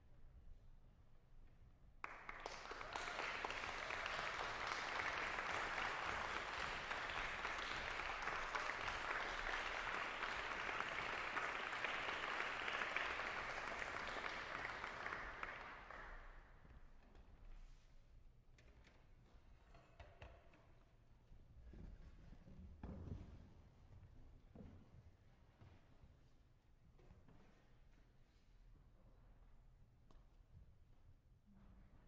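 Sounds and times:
audience applauding: 2.0s - 16.2s.

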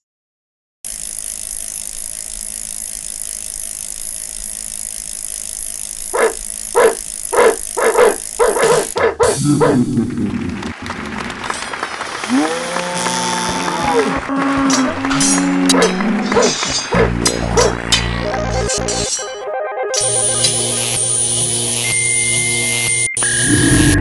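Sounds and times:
dog barking: 6.2s - 9.8s, 15.7s - 17.8s.

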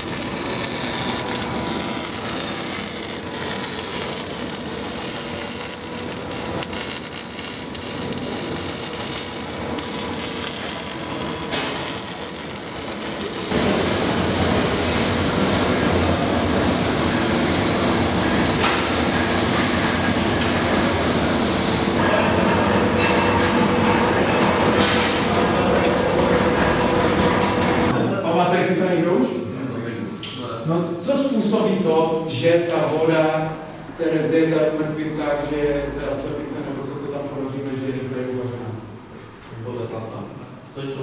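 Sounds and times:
welding arc crackling: 0.0s - 22.0s.

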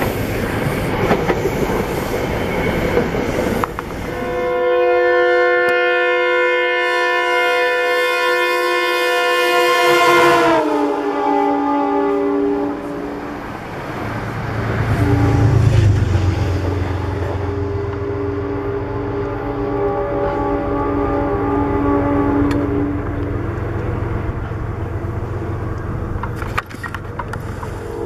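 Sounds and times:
passing train rumble: 0.0s - 28.0s
train horn chord: 4.1s - 13.3s, 14.8s - 25.7s.

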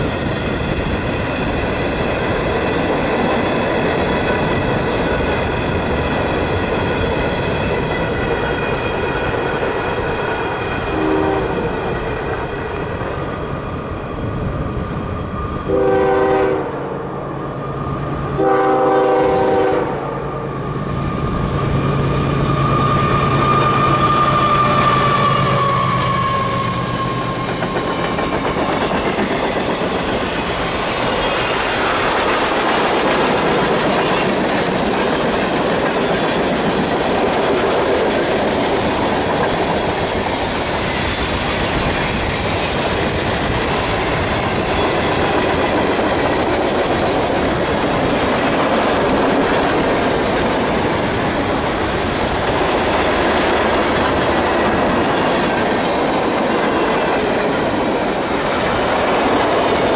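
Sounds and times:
locomotive air horn blasts: 10.9s - 11.6s, 15.7s - 17.1s, 18.4s - 20.3s
high wheel squeal: 20.4s - 28.8s, 44.1s - 45.3s
freight cars clickety-clack: 22.6s - 59.9s.

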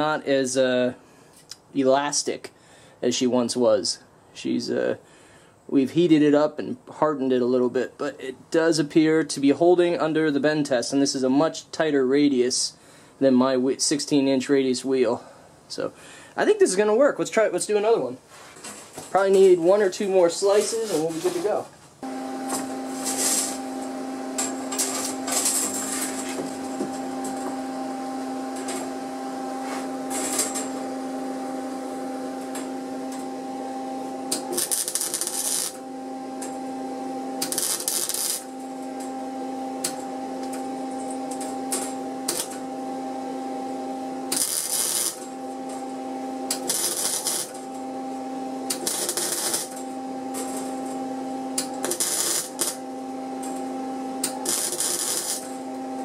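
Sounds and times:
welder electrical hum: 0.0s - 56.0s
welding arc crackle: 22.5s - 27.4s, 30.1s - 30.8s, 34.1s - 36.7s, 37.4s - 39.1s, 39.8s - 42.6s, 44.3s - 47.9s, 48.7s - 55.8s.

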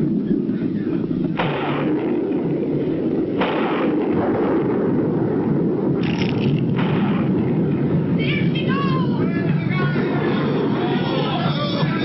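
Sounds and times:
heavy rumble of collapse: 0.0s - 12.0s
crashing bursts: 1.3s - 9.3s.

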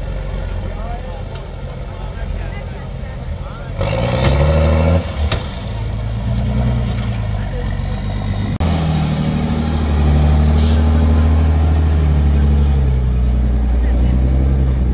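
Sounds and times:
diesel truck engine under load: 0.0s - 14.9s
short hiss: 10.6s - 10.9s.

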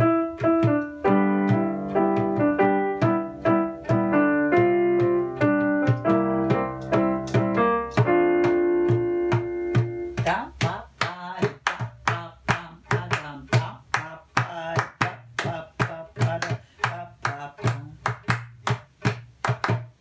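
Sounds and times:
hand drum beats: 0.0s - 20.0s
hand claps: 3.8s - 20.0s
woman singing: 10.3s - 18.0s.

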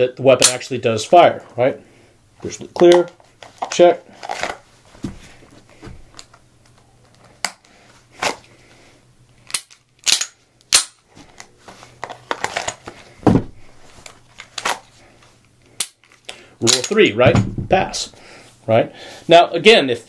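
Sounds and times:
pistol clicks: 9.5s - 11.0s.

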